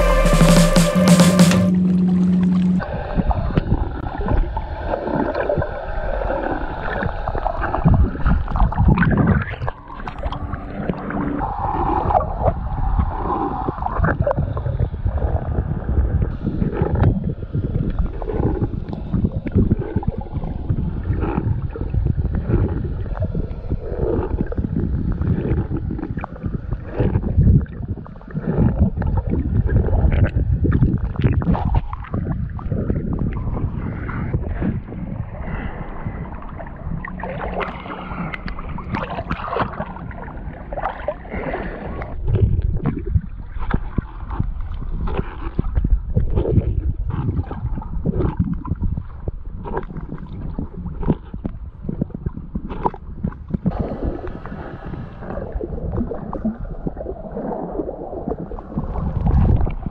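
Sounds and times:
muffled water sloshing and gurgling: 0:01.6 - 0:59.9.

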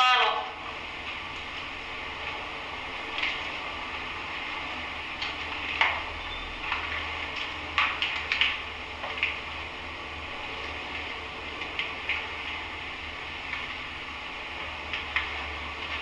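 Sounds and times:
static crackles and clicks: 0:00.0 - 0:16.0.

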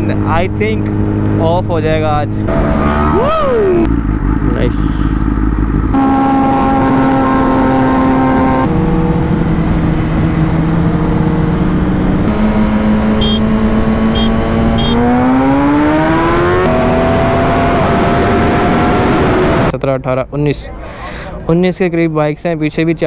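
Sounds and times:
motorcycle engine running hard: 0:00.0 - 0:19.7
short high beeps: 0:13.2 - 0:13.4.

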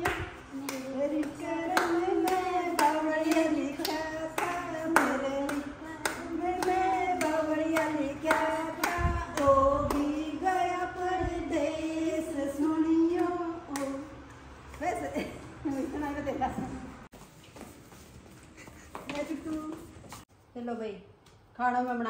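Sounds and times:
hand claps: 0:00.0 - 0:10.1, 0:13.1 - 0:14.0.

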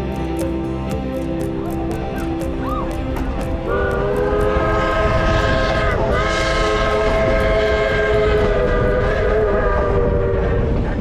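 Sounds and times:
rumble of moving train: 0:00.0 - 0:11.0
steam locomotive chime whistle: 0:03.7 - 0:10.8.

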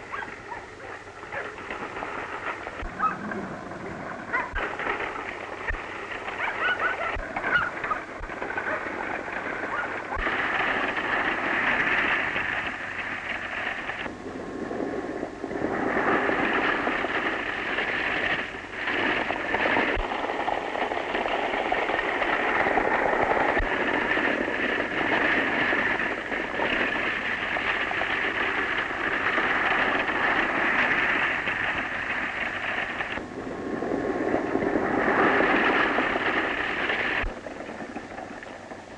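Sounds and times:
wagon wheels rattling: 0:00.0 - 0:14.0, 0:15.8 - 0:33.2
running hooves: 0:04.3 - 0:14.0.

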